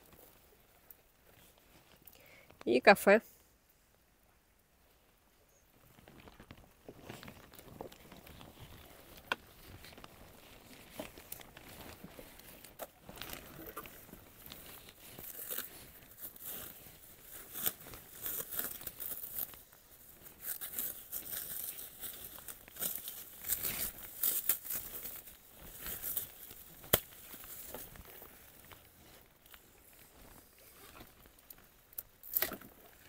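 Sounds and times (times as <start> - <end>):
packaging crinkling: 6.1 - 29.1.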